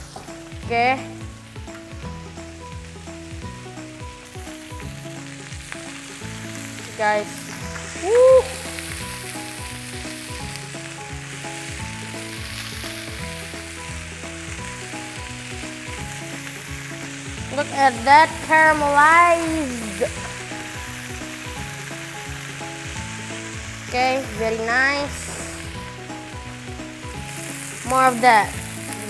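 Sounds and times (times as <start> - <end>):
chicken sizzling in a grill pan: 0.0 - 29.0.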